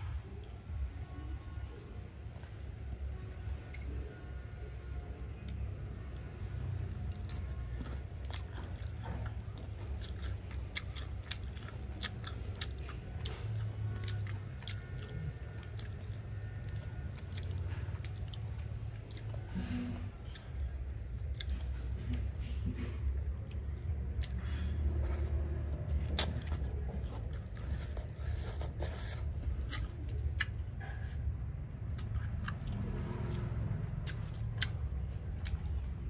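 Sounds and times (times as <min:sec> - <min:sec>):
person crunching food: 0:06.8 - 0:19.5, 0:23.2 - 0:31.2, 0:31.8 - 0:36.0.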